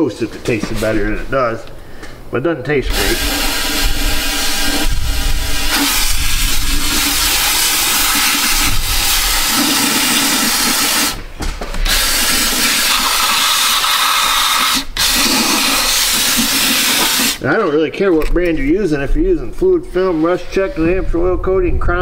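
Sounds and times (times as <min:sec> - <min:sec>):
spray gun hissing: 0:02.9 - 0:11.2, 0:11.8 - 0:17.4.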